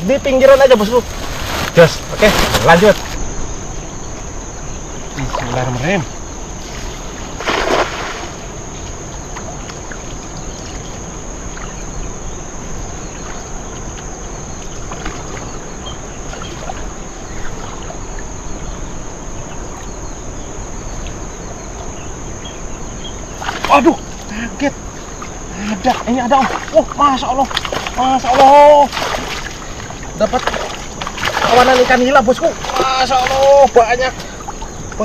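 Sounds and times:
constant high drone: 0:00.0 - 0:35.0
steady outdoor hiss: 0:00.0 - 0:35.0
cast net splashing into river: 0:07.4 - 0:08.4, 0:27.4 - 0:29.7, 0:30.4 - 0:32.0
faint splashes and drips: 0:27.5 - 0:33.6.

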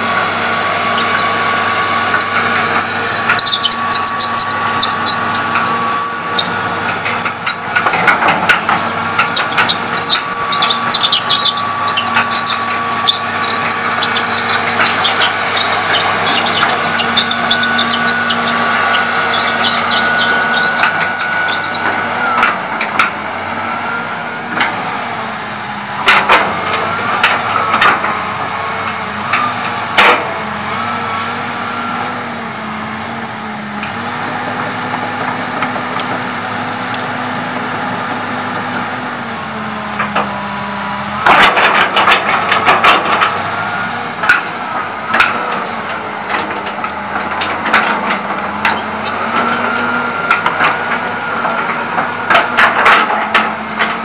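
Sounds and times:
steel tracks squealing: 0:00.0 - 0:25.0, 0:31.8 - 0:33.3, 0:41.1 - 0:54.0
excavator diesel engine drone: 0:00.0 - 0:54.0.

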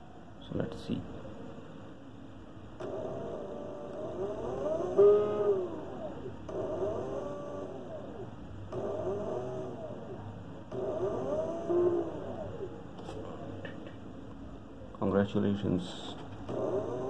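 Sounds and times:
electric motor whining: 0:02.8 - 0:13.3, 0:16.4 - 0:17.0.

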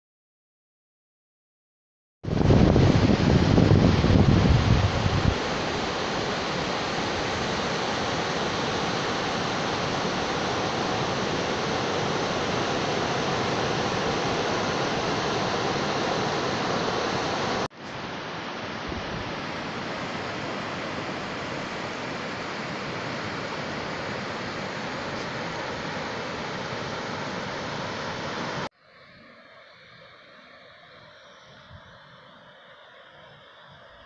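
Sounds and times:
wind: 0:02.2 - 0:34.0
surf breaking on beach: 0:02.3 - 0:28.7.

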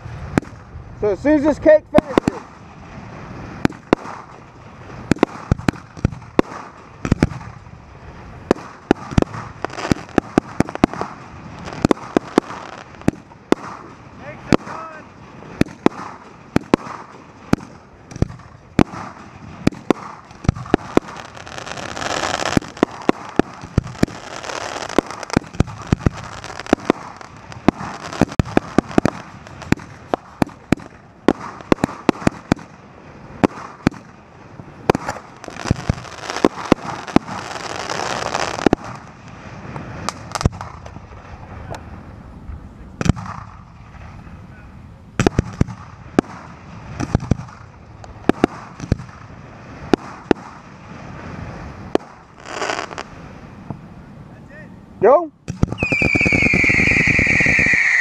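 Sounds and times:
fireworks launch thumps and bangs: 0:00.0 - 0:00.7, 0:03.5 - 0:07.7, 0:08.5 - 0:32.8, 0:33.4 - 0:34.2, 0:34.8 - 0:41.4, 0:43.0 - 0:44.2, 0:45.2 - 0:50.6, 0:55.4 - 0:56.6
fireworks hissing and crackling: 0:00.0 - 0:58.0.

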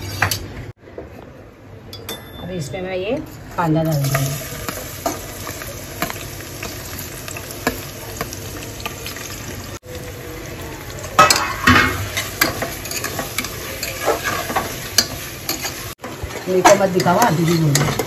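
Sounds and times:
onions sizzling in oil: 0:03.6 - 0:18.0.

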